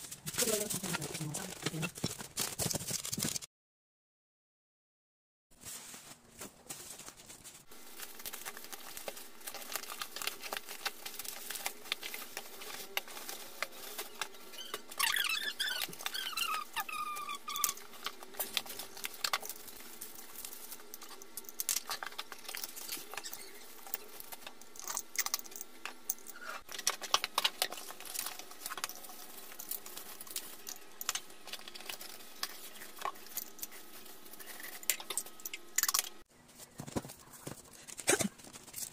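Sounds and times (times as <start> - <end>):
bubble wrap crinkling: 0.0 - 3.5, 5.6 - 38.9
squeaky rubbing: 12.8 - 17.9.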